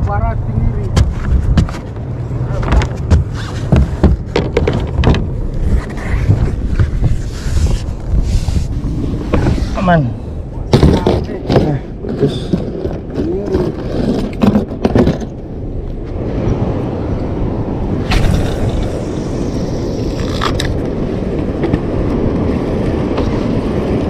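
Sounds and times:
boat engine rumbling: 0.0s - 24.0s
knocks and clatter: 0.9s - 5.4s, 12.5s - 15.4s.

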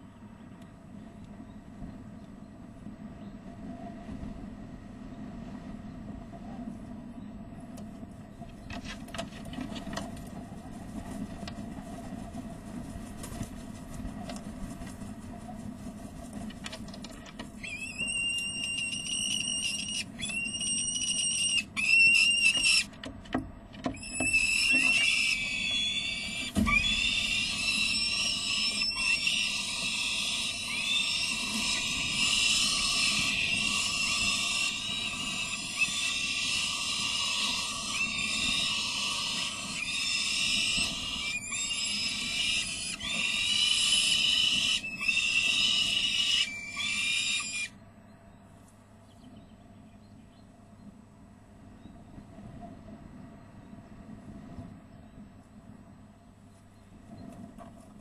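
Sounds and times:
steady low hum: 0.0s - 21.9s, 22.5s - 58.0s
falcon alarm calls: 17.5s - 23.0s, 23.9s - 47.8s.

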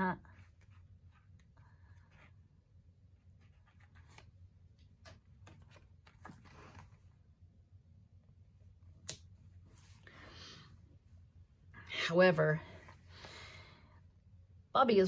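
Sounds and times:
paper rustling: 3.2s - 7.2s.

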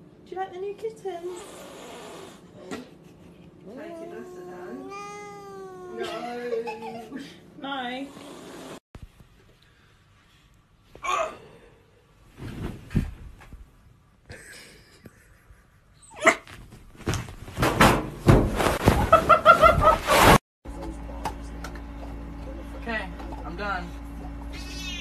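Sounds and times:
puppy crying: 3.8s - 6.9s, 16.0s - 16.5s
puppy whining: 16.0s - 16.6s
scuffling on a bed: 16.4s - 20.4s.

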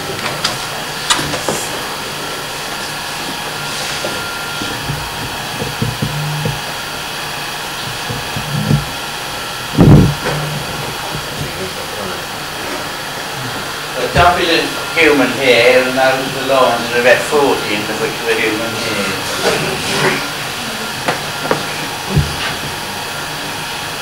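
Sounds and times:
film projector whirring: 0.0s - 24.0s
dull thump: 4.6s - 6.7s, 7.8s - 9.0s, 9.8s - 11.6s.

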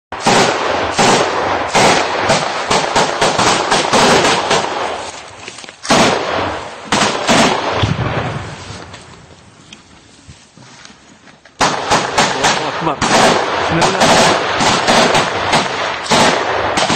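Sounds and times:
gunshots with echoing tail: 0.1s - 5.1s, 5.9s - 8.6s, 11.6s - 16.9s.

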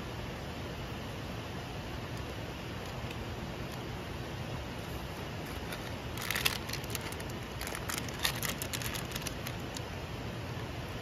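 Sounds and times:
crinkling crackles: 4.8s - 9.9s.

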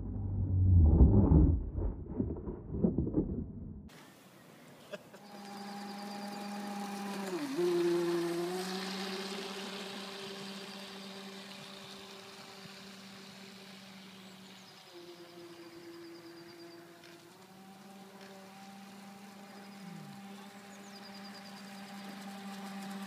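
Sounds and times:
loud rumbling noise: 0.0s - 3.9s
toy speedboat motor whining: 5.2s - 23.0s.

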